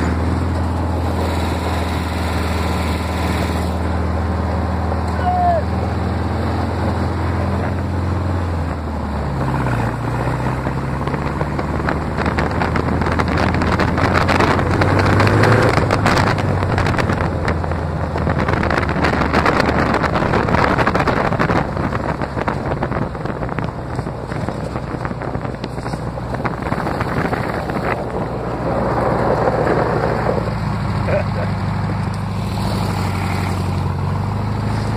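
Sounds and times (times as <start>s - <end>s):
buggy engine revving: 0.0s - 34.9s
wind on microphone: 6.8s - 30.6s.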